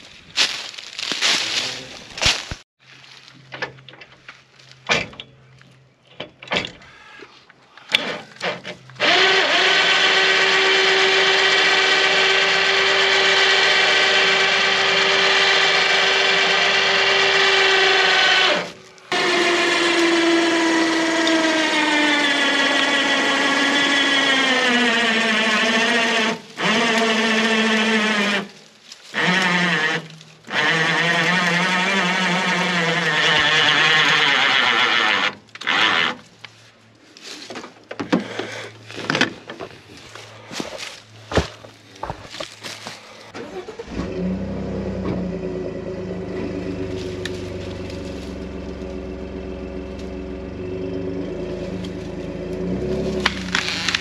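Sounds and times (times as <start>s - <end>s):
electric winch motor whining: 7.9s - 36.2s, 43.3s - 54.0s.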